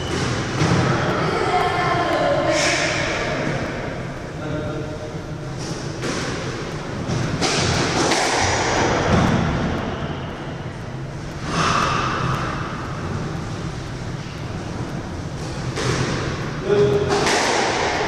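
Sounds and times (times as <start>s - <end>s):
squash ball hitting court walls: 0.0s - 1.8s, 5.6s - 10.0s, 15.4s - 18.0s.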